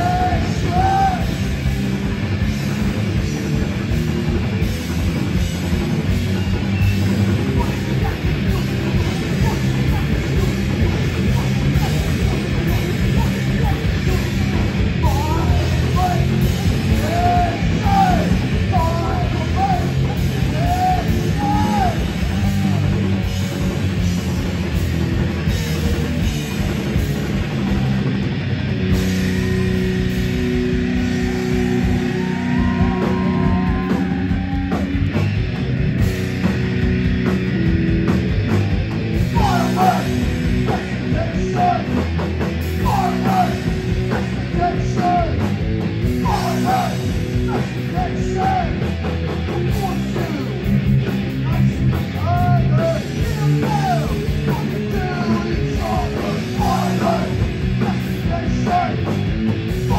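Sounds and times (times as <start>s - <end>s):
shouted vocals: 0.0s - 1.6s, 6.8s - 23.3s, 29.1s - 35.2s, 39.2s - 48.9s, 51.3s - 59.9s
bass guitar: 0.0s - 59.9s
distorted electric guitar: 0.0s - 59.9s
fast drum kit: 0.0s - 59.9s.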